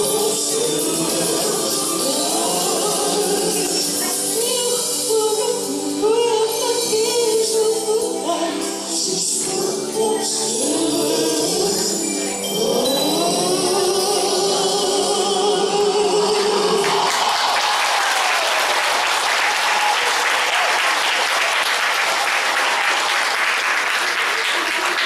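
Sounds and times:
held sung note with music: 0.0s - 17.3s
audience applauding: 16.4s - 25.0s.

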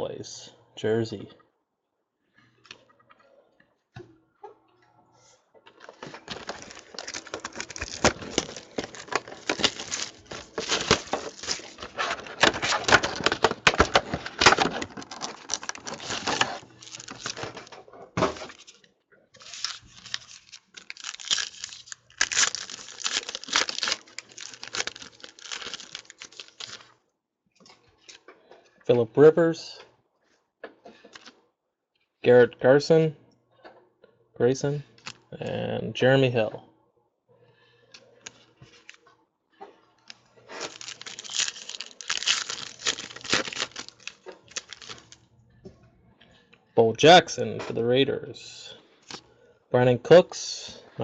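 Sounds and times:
wrapper tearing and crinkling: 6.0s - 18.8s, 19.4s - 26.9s, 40.5s - 45.2s.

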